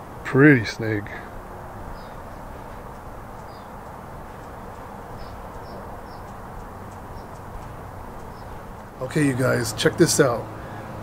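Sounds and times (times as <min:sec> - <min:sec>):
outdoor background noise: 0:00.0 - 0:11.0
small bird chirping: 0:01.8 - 0:09.0.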